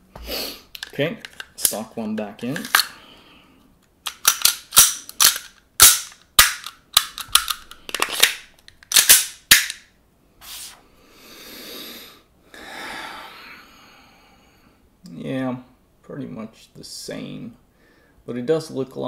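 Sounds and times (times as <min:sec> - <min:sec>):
airsoft pistol clicks and snaps: 0:04.0 - 0:09.9.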